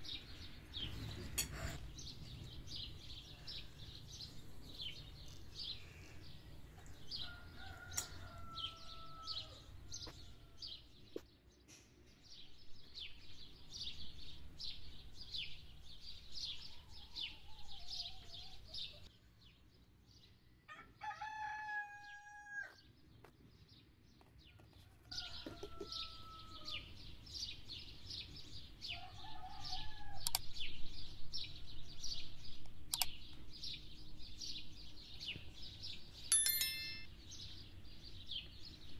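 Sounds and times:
small birds chirping: 0.0s - 20.7s, 22.6s - 38.9s
rooster crowing: 7.2s - 9.7s, 20.7s - 22.8s, 25.1s - 26.9s, 28.9s - 30.3s.

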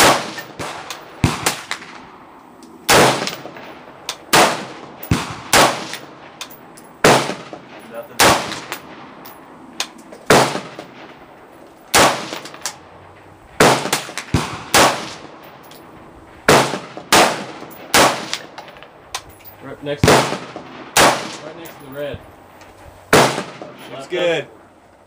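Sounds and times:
rifle shots with short echo: 0.0s - 2.2s, 2.9s - 6.4s, 7.0s - 9.2s, 10.2s - 11.3s, 11.9s - 12.8s, 13.6s - 15.6s, 16.5s - 18.7s, 19.9s - 21.7s, 23.1s - 24.0s
fainter distant gunshots: 0.0s - 2.3s, 2.9s - 6.4s, 7.0s - 9.2s, 10.2s - 11.3s, 11.9s - 15.6s, 16.4s - 18.6s, 19.8s - 21.7s, 23.1s - 24.2s.

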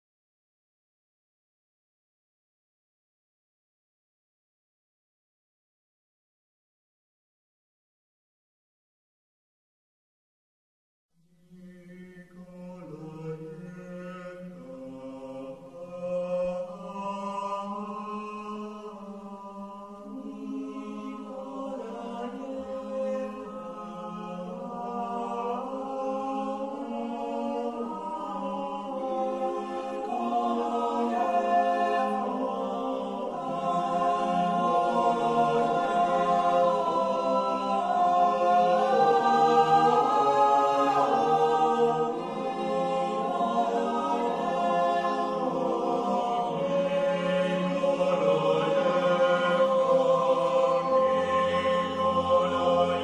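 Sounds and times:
choir singing held notes: 12.3s - 53.0s.

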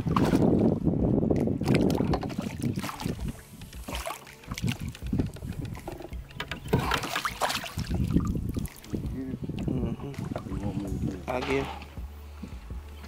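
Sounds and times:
landing net splashing in water: 1.6s - 9.1s.

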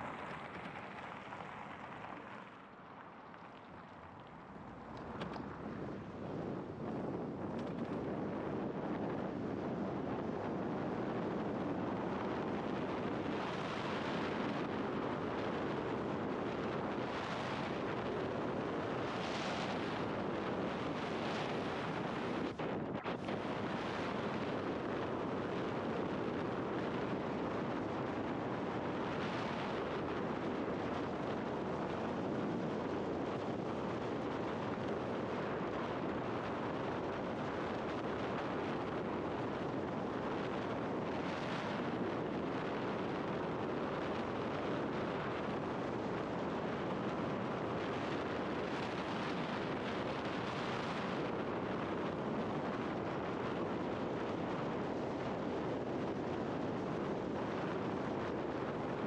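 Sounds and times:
tyre and road noise: 0.0s - 8.9s
wind rushing over camera: 0.0s - 59.0s.

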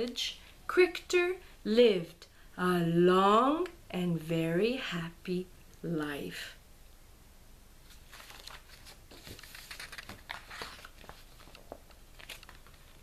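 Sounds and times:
book paper crinkling and taps: 7.9s - 13.0s.

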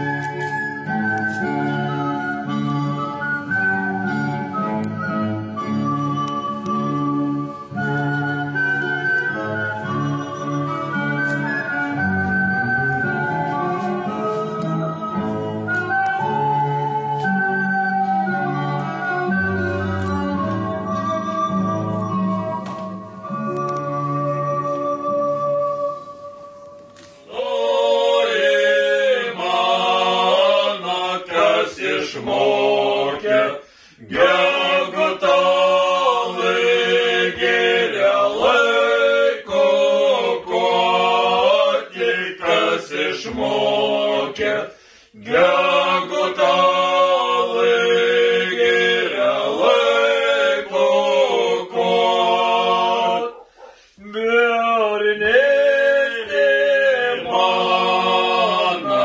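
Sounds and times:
men singing a cappella: 27.3s - 59.0s.

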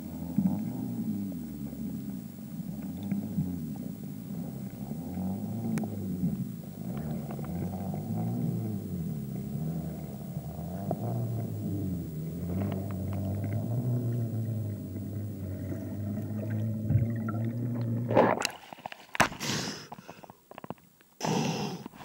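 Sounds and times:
low underwater rumble: 0.0s - 18.8s
short sharp breaths: 19.3s - 20.4s, 21.2s - 22.0s.

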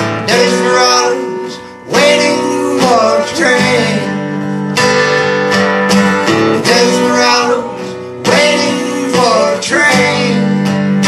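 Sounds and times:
acoustic guitar strumming: 0.0s - 11.0s
person singing: 0.2s - 4.4s, 6.6s - 10.9s.

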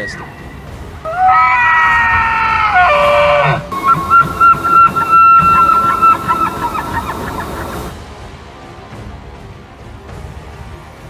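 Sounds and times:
elk bugling: 1.0s - 7.9s.

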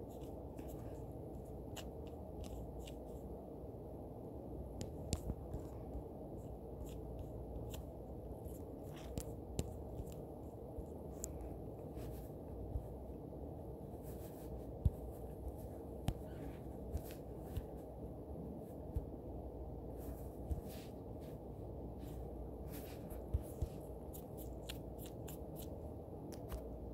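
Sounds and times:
low hum: 0.0s - 26.9s
taps and scrapes on touchscreen: 0.1s - 3.2s, 4.8s - 13.0s, 14.0s - 17.9s, 22.7s - 26.7s.

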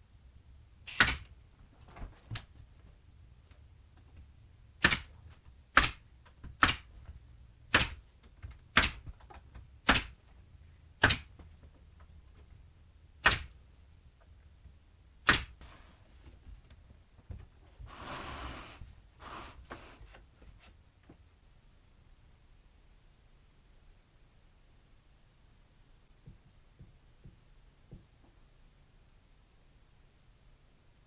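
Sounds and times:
nail gun firing: 0.8s - 1.3s, 4.8s - 5.1s, 5.7s - 6.0s, 6.6s - 6.9s, 7.7s - 8.0s, 8.7s - 9.0s, 9.8s - 10.2s, 11.0s - 11.3s, 13.2s - 13.6s, 15.2s - 15.6s.

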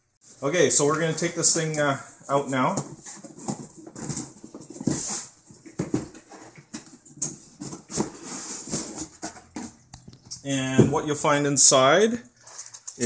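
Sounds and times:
cardboard scraping and rustling: 2.3s - 9.8s.

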